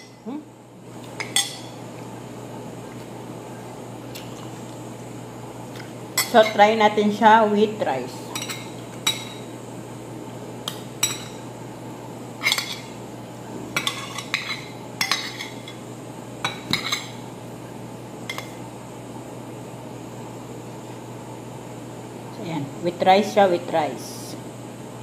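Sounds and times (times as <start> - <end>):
cutlery clinking on a plate: 13.8 - 15.8.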